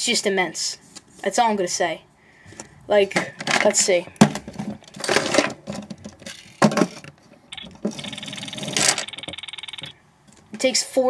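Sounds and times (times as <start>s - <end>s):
rapid camera shutter clicks: 7.6s - 9.9s.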